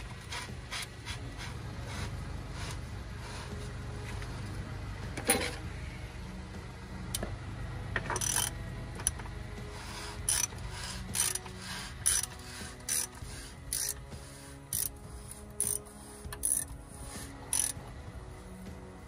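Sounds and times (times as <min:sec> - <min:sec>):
steady low hum: 0:00.0 - 0:19.0
ratchet wrench clicking: 0:08.1 - 0:09.2, 0:09.9 - 0:14.1, 0:14.7 - 0:17.8.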